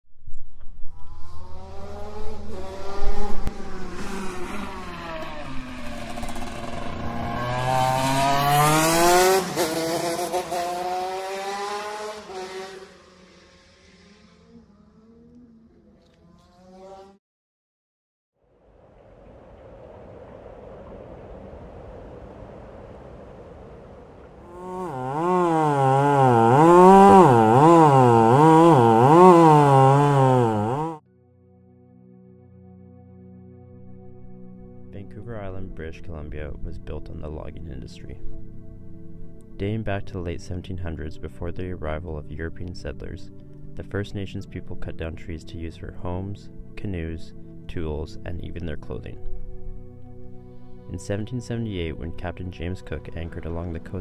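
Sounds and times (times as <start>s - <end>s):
racing engine revving: 1.0s - 17.2s, 24.4s - 31.0s.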